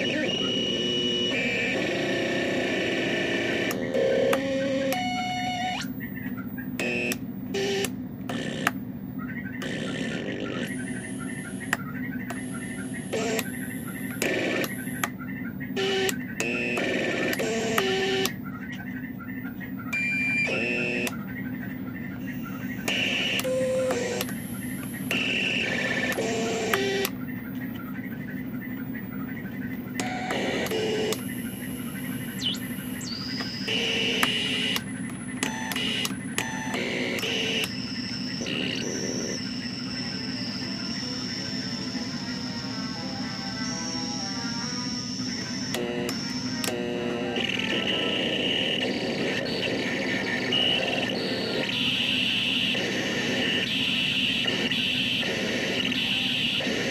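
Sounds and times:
low buzzing synth drone: 0.0 - 56.9
steady hum: 0.0 - 56.9
warbling synth chirps: 8.4 - 56.9
harsh synth noise blasts: 9.5 - 15.0, 29.3 - 56.9.

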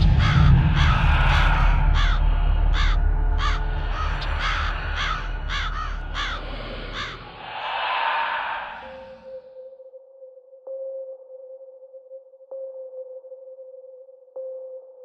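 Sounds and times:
crow cawing: 0.0 - 9.4
deep rumble: 0.0 - 9.4.

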